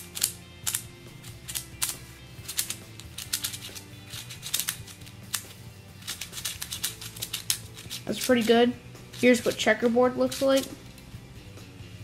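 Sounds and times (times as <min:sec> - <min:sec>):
plastic puzzle clicking: 0:00.0 - 0:09.6
faint music: 0:00.0 - 0:12.0.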